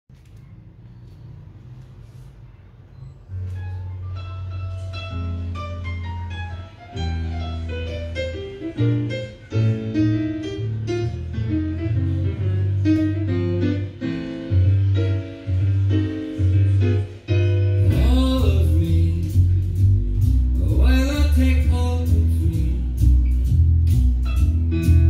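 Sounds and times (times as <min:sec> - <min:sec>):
plucked notes over pulsing bass: 0:09.9 - 0:25.0
person singing: 0:17.8 - 0:23.3.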